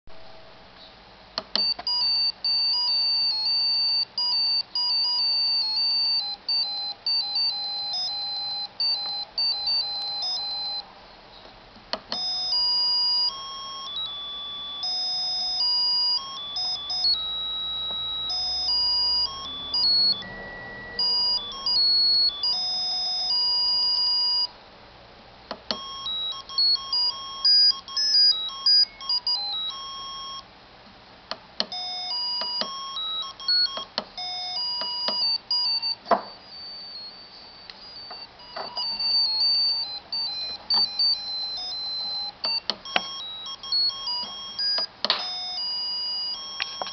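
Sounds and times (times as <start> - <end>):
piezo buzzer beeping melody: 1.4 - 10.9, 12.0 - 24.6, 25.5 - 30.5, 31.6 - 46.9.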